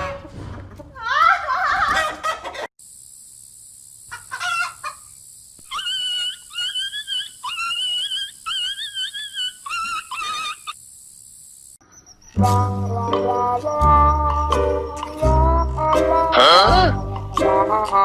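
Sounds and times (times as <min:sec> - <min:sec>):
steady high hiss: 0:02.8 - 0:11.8
high-pitched animal calls: 0:04.1 - 0:10.8, 0:16.1 - 0:17.0.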